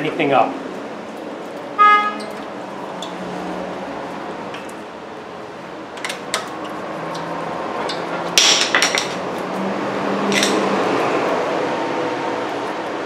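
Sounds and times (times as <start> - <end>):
low shop hum: 0.0 - 13.0
metal hand tools clinking: 10.3 - 10.6.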